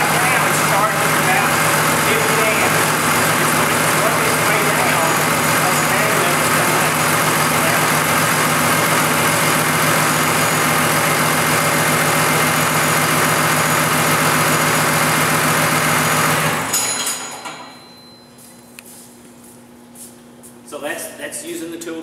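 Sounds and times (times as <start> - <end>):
diesel engine idling: 0.0 - 16.7.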